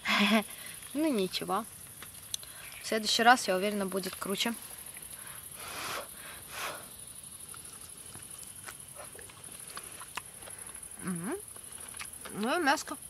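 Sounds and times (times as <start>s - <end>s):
faint chewing clicks: 1.8s - 2.8s, 7.3s - 12.5s
person puffing air out: 5.6s - 6.9s.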